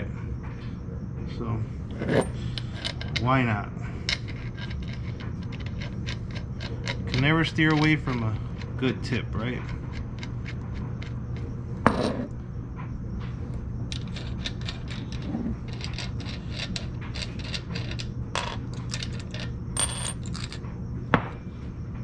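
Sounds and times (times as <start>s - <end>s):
steady low hum: 0.0s - 22.0s
small metal parts clinking: 1.9s - 3.4s, 4.0s - 12.3s, 13.9s - 20.6s.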